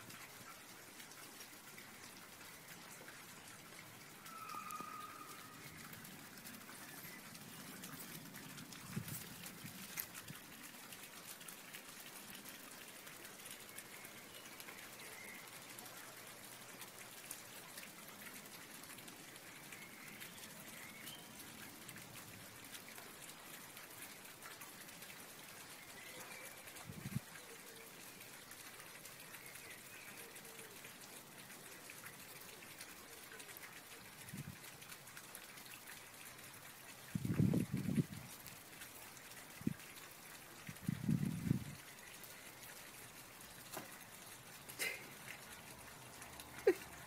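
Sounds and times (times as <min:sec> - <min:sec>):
faint outdoor hiss: 0:00.0 - 0:47.0
light ticks: 0:05.8 - 0:11.0.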